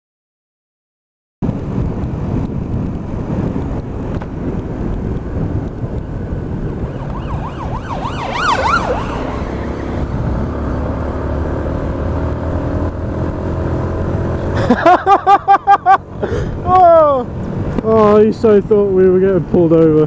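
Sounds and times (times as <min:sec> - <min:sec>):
wind noise: 0:01.4 - 0:20.0
siren yelping: 0:06.8 - 0:10.0.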